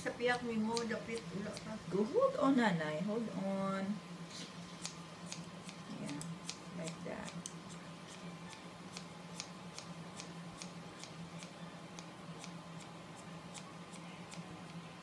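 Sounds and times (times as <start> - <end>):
low steady hum: 0.0 - 15.0
scissors snipping hair: 0.7 - 1.7, 4.8 - 8.2.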